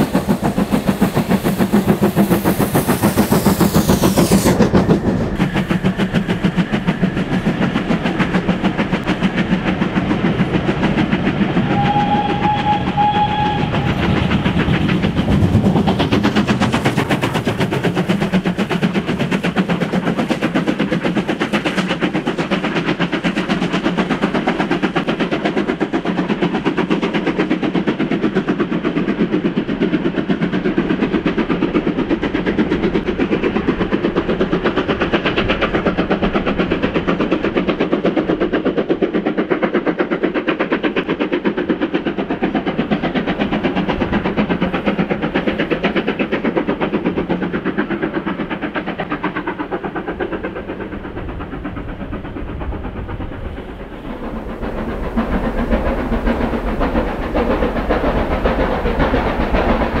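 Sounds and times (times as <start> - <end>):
distant steam engine hissing: 0.0 - 60.0
steam locomotive exhaust beats: 0.0 - 60.0
train rumble: 0.0 - 60.0.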